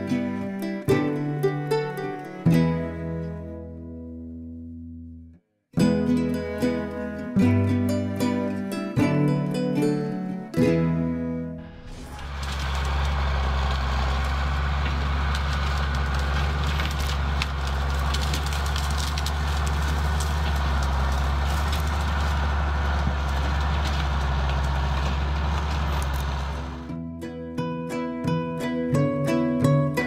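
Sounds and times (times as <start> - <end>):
old film reel hum and crackle: 11.8 - 26.9.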